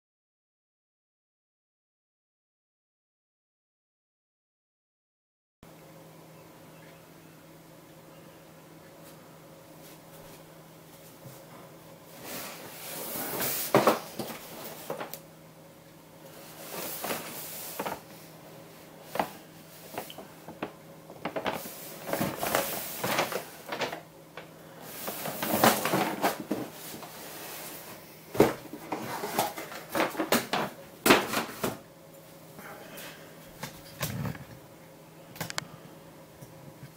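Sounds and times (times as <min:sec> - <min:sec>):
cardboard rustling and scraping: 0:12.1 - 0:15.2, 0:16.4 - 0:18.2, 0:19.0 - 0:24.0, 0:24.8 - 0:31.8.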